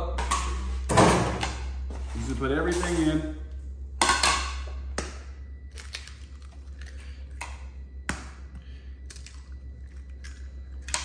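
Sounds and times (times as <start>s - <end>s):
low steady hum: 0.0s - 11.0s
eggs cracking: 5.0s - 11.0s.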